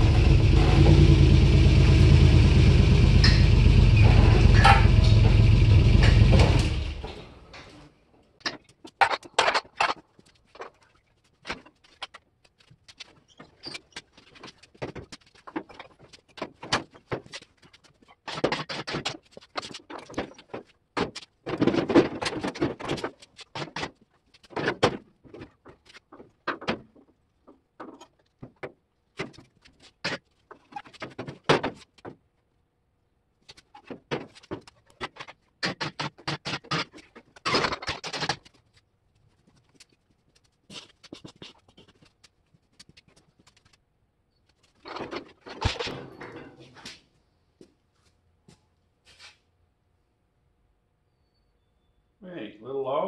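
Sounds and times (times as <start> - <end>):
metal clanks knocks and rattles: 0.0 - 32.3, 44.6 - 47.0.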